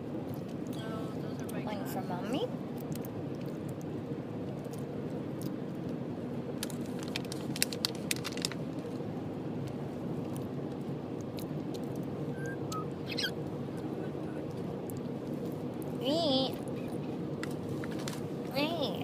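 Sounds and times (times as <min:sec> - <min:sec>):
low hum: 0:00.0 - 0:19.0
parrot cracking seeds: 0:06.6 - 0:08.7
parrot squeak: 0:12.3 - 0:13.4.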